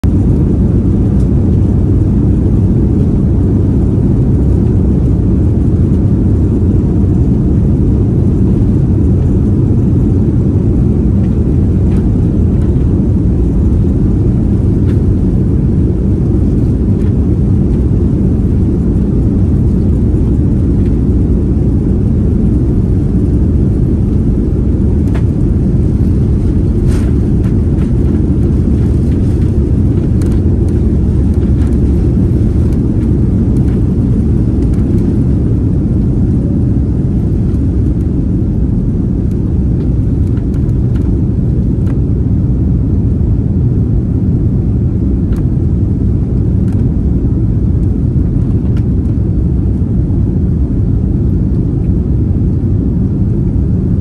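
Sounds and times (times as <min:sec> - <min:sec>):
airliner rumble in cabin: 0:00.0 - 0:54.0.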